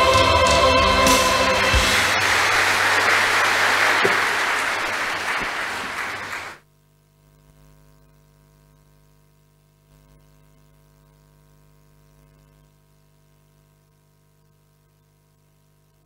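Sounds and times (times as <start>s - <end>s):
choir final chord: 0.0s - 6.4s
audience applauding: 0.0s - 6.6s
faint hum: 0.0s - 16.0s.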